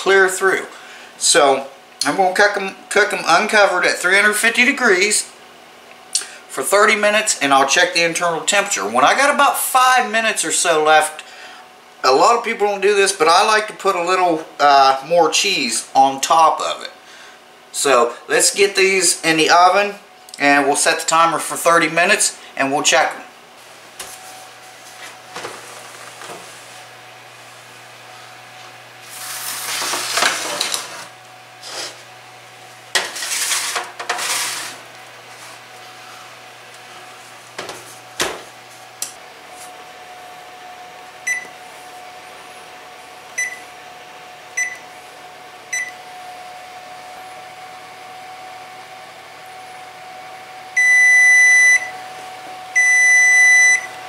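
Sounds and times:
baking pan scraping: 29.0s - 32.1s, 32.9s - 35.6s
oven door thud: 37.6s - 38.5s
control panel beeps: 41.3s - 41.5s, 43.4s - 43.6s, 44.6s - 44.8s.

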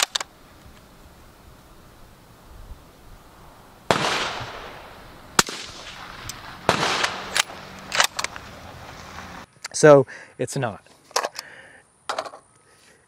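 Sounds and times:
rifle bolt metallic clicks: 0.0s - 0.3s, 5.4s - 8.5s
suppressed rifle shot: 3.9s - 8.5s.

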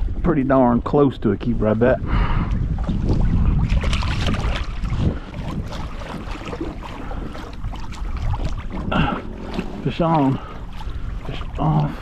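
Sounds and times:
water lapping against hull: 0.0s - 12.0s
wind buffeting microphone: 0.0s - 12.0s
sharp splashes and knocks: 2.5s - 12.0s.

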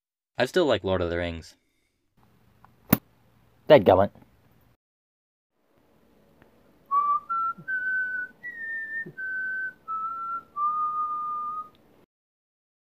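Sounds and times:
person whistling a tune: 6.9s - 11.8s.

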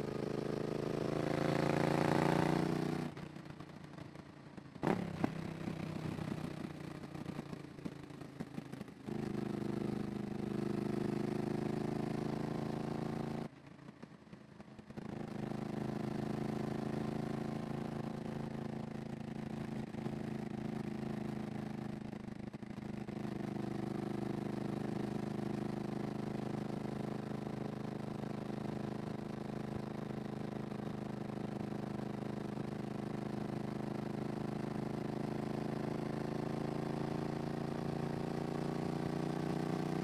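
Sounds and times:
motorcycle engine running: 0.0s - 40.0s.

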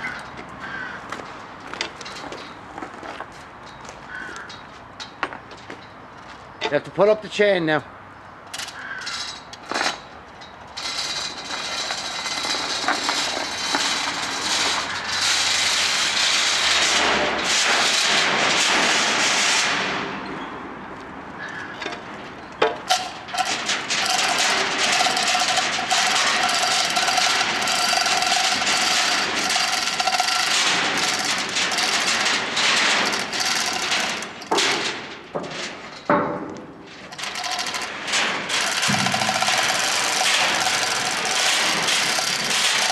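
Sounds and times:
steel chain rattling through hoist: 9.2s - 16.9s, 22.9s - 35.1s, 37.0s - 42.9s.

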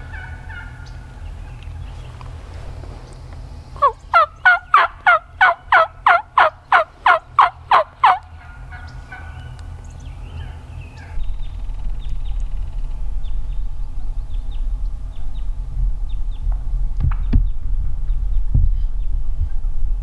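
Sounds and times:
turkey yelping: 0.0s - 1.1s, 3.8s - 11.2s
low rumble: 0.0s - 20.0s.

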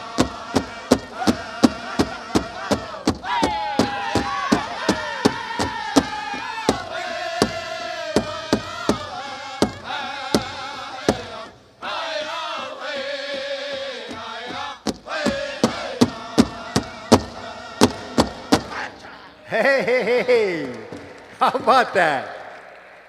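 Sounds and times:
bass drum beats: 0.0s - 11.3s, 14.1s - 18.8s
men chanting high voices: 0.0s - 22.5s.

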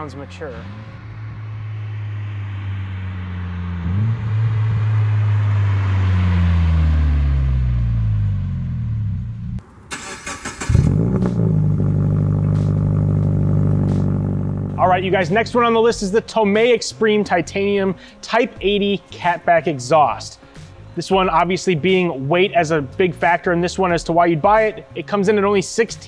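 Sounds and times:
car exhaust revving: 0.0s - 16.2s
rushing noise: 1.0s - 8.3s.

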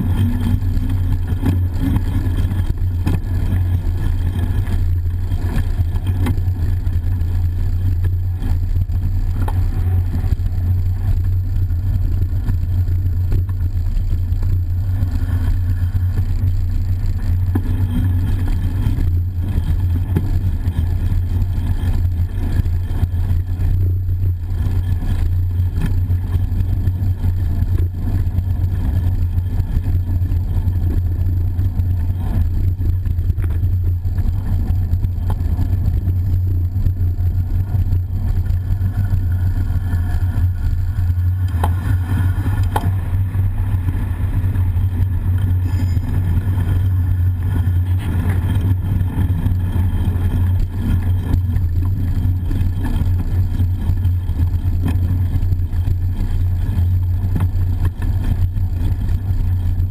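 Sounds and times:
bicycle rolling noise: 0.0s - 59.9s
echoing tunnel traffic: 36.5s - 50.2s.

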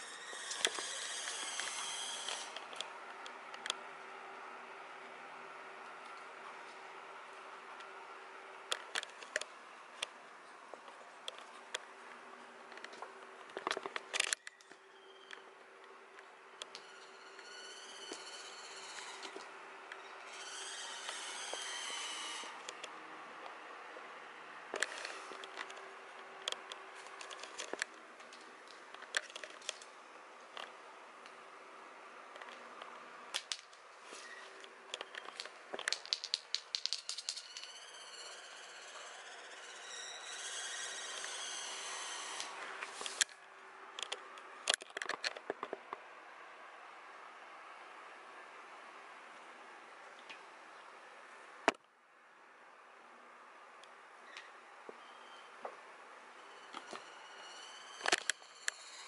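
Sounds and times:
kitten claws clicking on floor: 35.8s - 37.7s.

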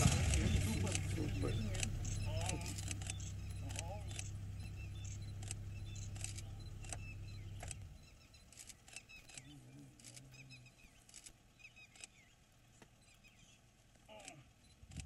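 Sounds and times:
low murmur: 0.0s - 11.5s
vehicle engine idling: 0.0s - 14.8s
faint high chirps and clicks: 0.3s - 14.0s.

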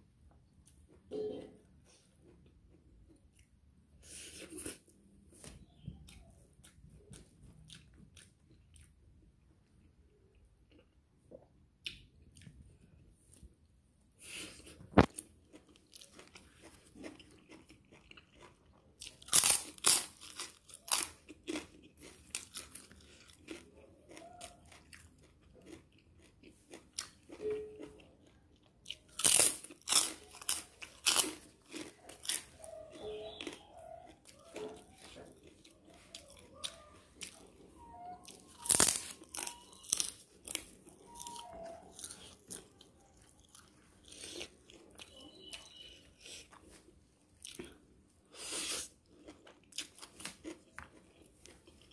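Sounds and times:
person crunching and chewing: 14.2s - 51.9s.

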